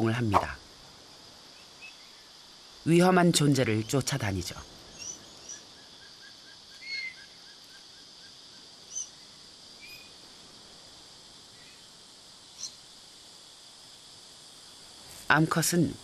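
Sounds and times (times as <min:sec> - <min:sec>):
insect hiss: 0:00.0 - 0:16.0
bird chirps: 0:04.9 - 0:07.6.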